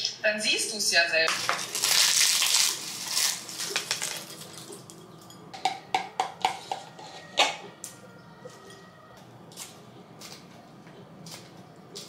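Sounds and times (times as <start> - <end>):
tortilla chips crushing: 1.3 - 5.1
metal spoon clinking glass bowl: 3.5 - 7.5.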